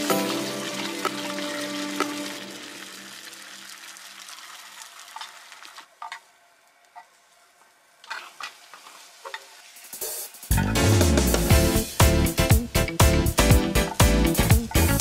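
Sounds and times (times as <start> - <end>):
loud music: 0.0 - 2.6, 10.5 - 15.0
egg sizzling faintly in a pan: 0.2 - 6.3.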